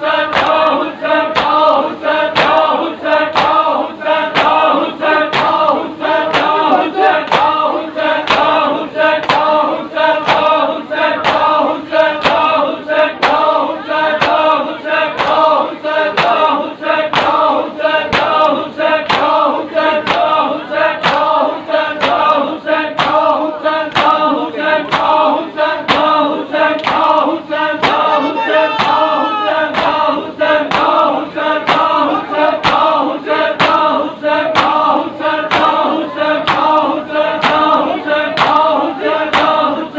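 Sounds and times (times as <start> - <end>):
men chanting a lament in unison: 0.0 - 39.9
hands slapping on chests: 0.2 - 3.7, 4.3 - 7.6, 8.3 - 9.6, 10.2 - 10.6, 11.2 - 11.6, 17.1 - 17.5, 18.1 - 19.4, 20.0 - 20.4, 21.0 - 21.4, 23.0 - 24.3, 24.9 - 33.0, 33.6 - 34.0, 34.6 - 34.9, 35.5 - 37.8, 38.4 - 38.7.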